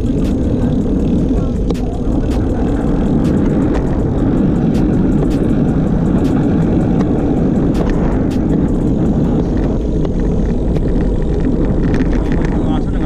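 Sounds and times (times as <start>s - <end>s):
faint ticks: 0.0s - 13.0s
wind buffeting microphone: 0.0s - 13.0s.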